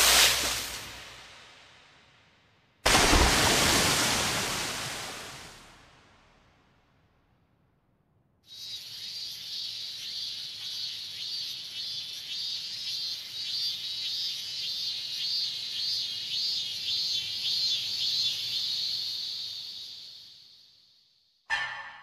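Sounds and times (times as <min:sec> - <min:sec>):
cicadas droning: 0:08.4 - 0:21.1.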